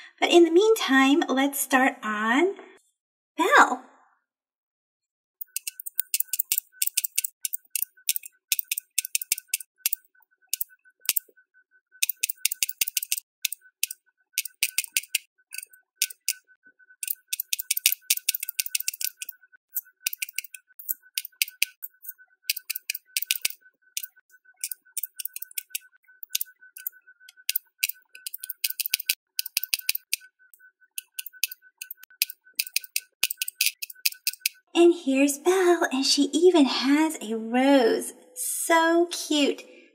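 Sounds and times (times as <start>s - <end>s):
plastic bead pen clicking: 5.4s - 11.2s, 12.0s - 16.4s, 17.0s - 34.6s.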